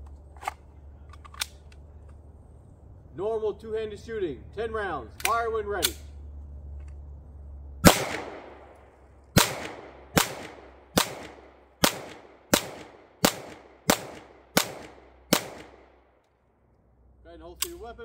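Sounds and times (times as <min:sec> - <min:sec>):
gunshot echo: 0:07.8 - 0:08.8, 0:09.4 - 0:15.9
pistol shots: 0:07.8 - 0:16.0.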